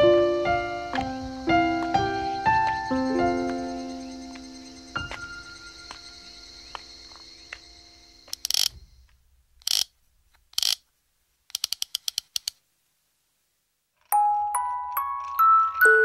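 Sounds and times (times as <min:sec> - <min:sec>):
soft background music: 0:00.0 - 0:08.3, 0:14.1 - 0:16.0
rapid sharp clicks: 0:08.3 - 0:08.8, 0:09.6 - 0:10.8, 0:11.5 - 0:12.6.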